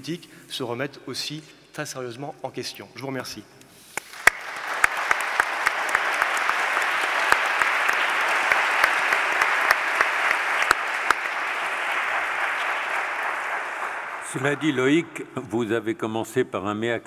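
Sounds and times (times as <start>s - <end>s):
audience applauding: 4.0s - 15.1s.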